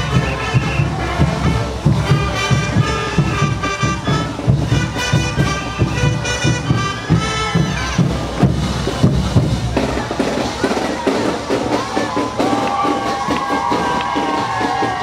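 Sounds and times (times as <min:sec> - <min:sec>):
brass band horns melody: 0:00.0 - 0:13.2
steady drum beat: 0:00.0 - 0:15.0.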